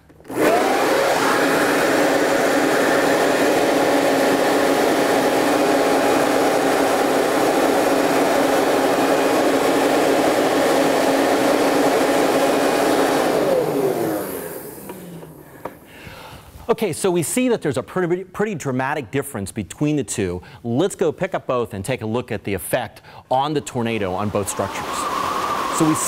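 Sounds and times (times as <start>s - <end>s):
electric leaf blower whining: 0.0s - 15.9s, 23.9s - 26.0s.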